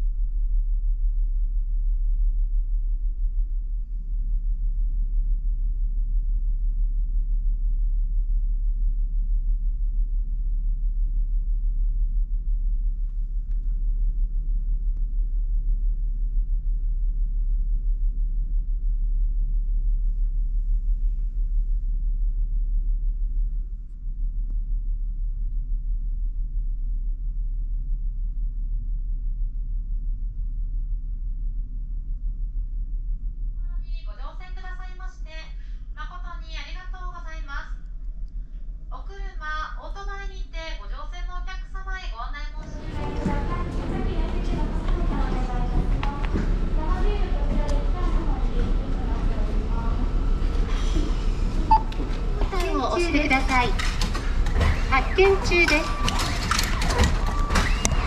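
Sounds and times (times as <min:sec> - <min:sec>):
ferry engines rumbling: 0:42.6 - 0:57.4.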